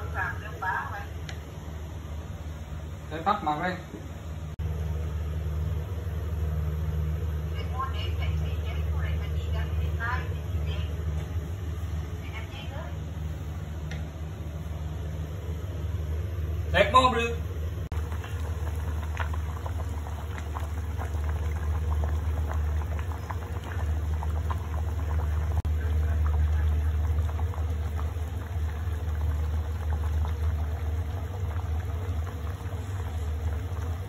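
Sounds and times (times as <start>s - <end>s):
low steady hum: 0.0s - 34.0s
curry bubbling in a pot: 17.8s - 34.0s.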